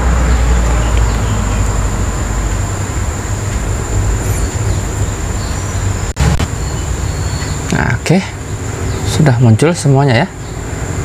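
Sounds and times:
high constant whine: 0.0 - 11.0
rumbling background noise: 0.0 - 11.0.

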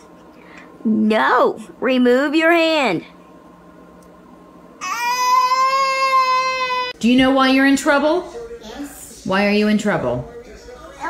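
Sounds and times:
faint hum: 0.0 - 11.0
toddler crying: 4.8 - 7.0.

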